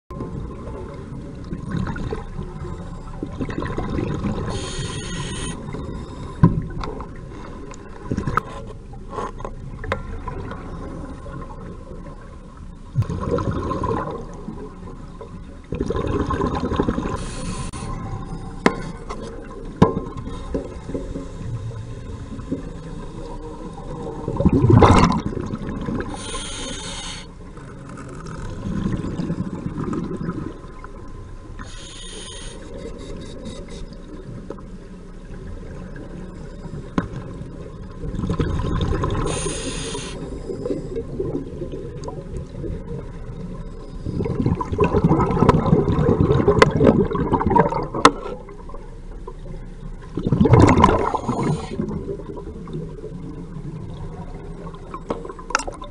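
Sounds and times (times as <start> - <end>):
muffled underwater water bubbling: 0.1 - 9.0, 9.6 - 55.9
brief hisses: 39.3 - 40.2.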